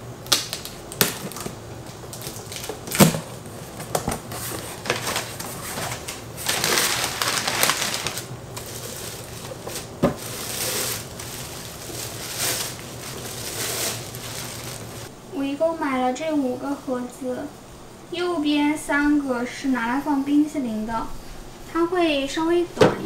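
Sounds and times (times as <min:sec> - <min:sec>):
packages rustling: 0:00.3 - 0:15.1.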